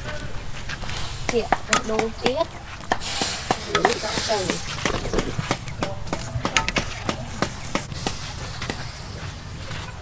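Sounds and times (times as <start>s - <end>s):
cooking utensils clicking and knocking: 1.3s - 8.8s.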